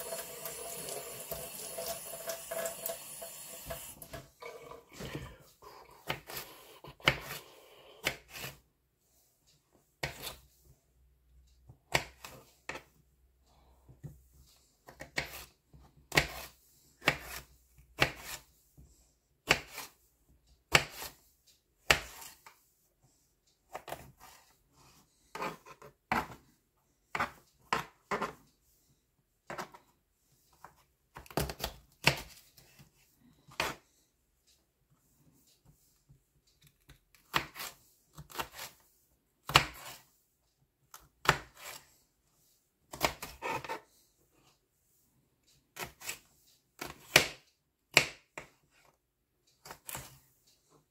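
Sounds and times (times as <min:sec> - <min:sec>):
knife chopping on plastic board: 0:06.0 - 0:07.4, 0:08.0 - 0:08.6, 0:10.0 - 0:10.4, 0:11.8 - 0:12.9, 0:14.8 - 0:18.4, 0:19.4 - 0:20.0, 0:20.7 - 0:21.2, 0:21.8 - 0:22.4, 0:23.7 - 0:24.4, 0:25.3 - 0:26.4, 0:27.1 - 0:28.4, 0:29.5 - 0:29.8, 0:30.7 - 0:32.8, 0:33.5 - 0:33.8, 0:36.8 - 0:38.8, 0:39.4 - 0:40.0, 0:40.9 - 0:41.8, 0:42.9 - 0:43.8, 0:45.8 - 0:46.2, 0:46.8 - 0:48.6, 0:49.6 - 0:50.2.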